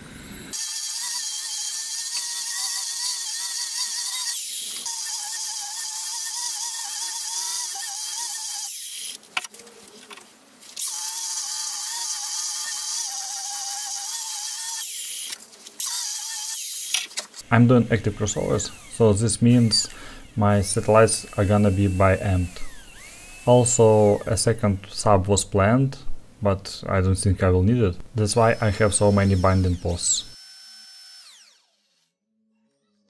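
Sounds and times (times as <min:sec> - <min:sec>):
electric sander whining on wood: 0:18.0 - 0:24.4, 0:28.4 - 0:32.1.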